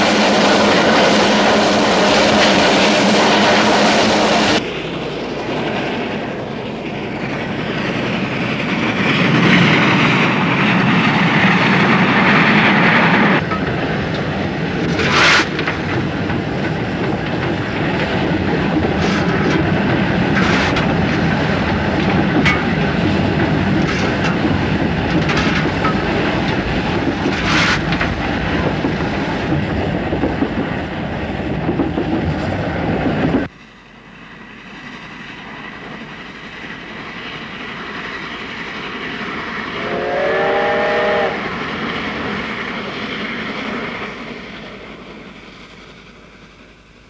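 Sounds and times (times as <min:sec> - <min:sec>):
steam locomotive running: 0:00.0 - 0:47.0
steam whistle: 0:39.7 - 0:41.6.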